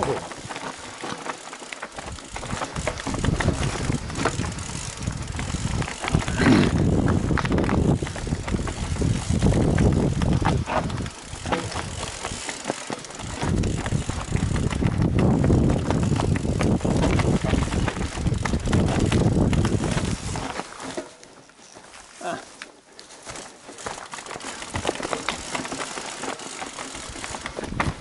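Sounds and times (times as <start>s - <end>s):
bike knocks and rattles: 0.0s - 21.3s, 23.2s - 28.0s
bike tyres crunching on trail: 0.0s - 28.0s
wind on microphone: 2.3s - 12.1s, 13.2s - 20.6s.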